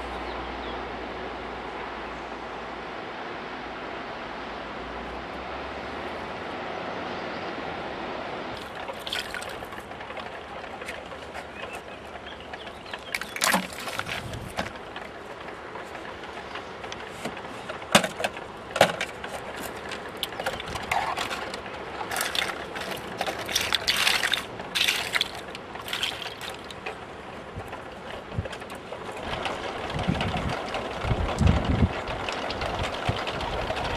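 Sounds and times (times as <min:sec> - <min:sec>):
plastic bottles clattering: 0:08.6 - 0:09.8, 0:13.0 - 0:14.8, 0:17.9 - 0:26.9.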